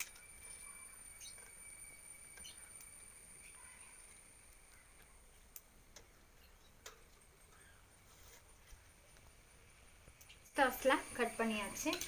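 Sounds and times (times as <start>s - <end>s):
faint high-pitched tone: 0.0s - 5.4s, 9.0s - 12.0s.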